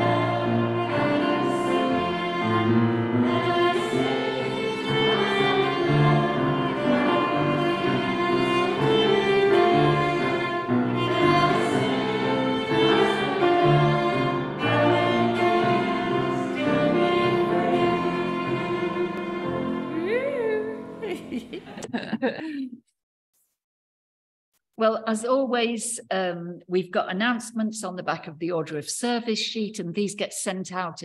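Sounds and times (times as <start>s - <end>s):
bowed cello notes: 0.0s - 21.9s
piano chords: 0.0s - 21.9s.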